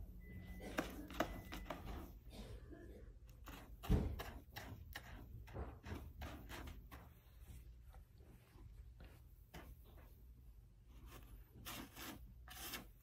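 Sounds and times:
cat scraping litter: 3.3s - 7.5s, 10.9s - 13.0s.

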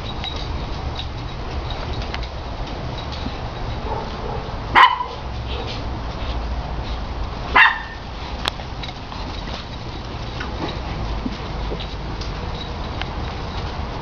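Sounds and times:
puppies barking high-pitched: 3.8s - 5.8s, 7.5s - 8.1s.

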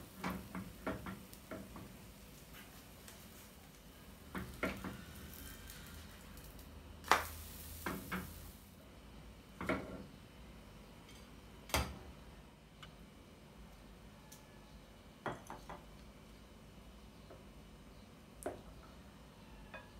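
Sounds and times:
spatula scraping frying pan: 4.4s - 6.2s.

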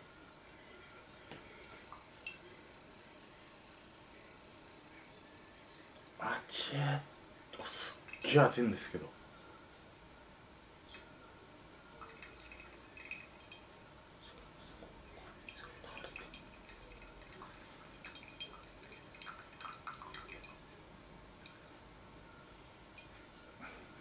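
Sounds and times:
water dripping and splashing: 7.9s - 8.4s, 12.0s - 13.9s, 15.0s - 20.6s.

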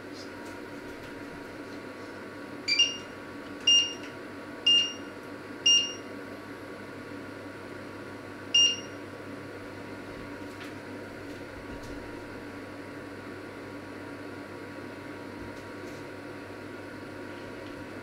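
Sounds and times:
short high beeps of touch panel: 2.7s - 3.1s, 5.7s - 6.0s, 8.6s - 8.9s.

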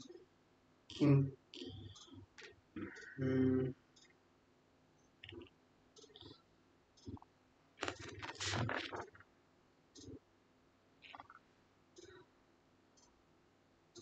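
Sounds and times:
scratches: 7.8s - 9.2s.

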